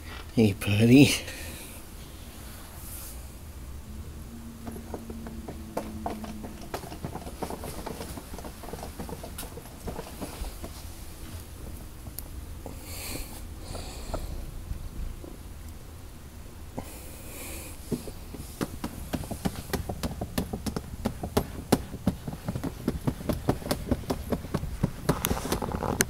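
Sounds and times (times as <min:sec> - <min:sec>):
steady hum: 0:00.0 - 0:26.0
clicks and rustles: 0:04.6 - 0:12.8, 0:17.9 - 0:26.0.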